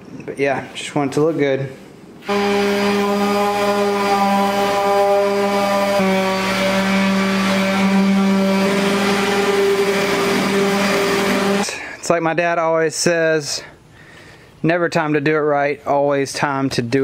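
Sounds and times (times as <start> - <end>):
electric orbital sander running: 2.2 - 11.7.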